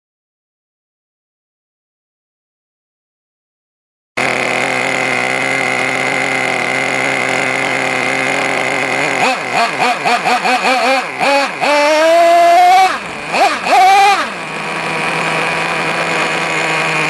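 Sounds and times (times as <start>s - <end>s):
small nitro engine idling and revving: 4.2s - 17.0s.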